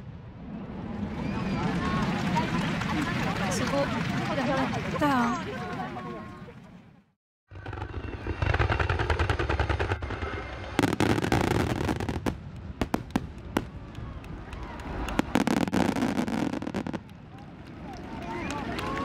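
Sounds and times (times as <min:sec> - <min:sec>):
fireworks bangs: 0:07.6 - 0:17.5
fireworks crackling: 0:07.6 - 0:19.0.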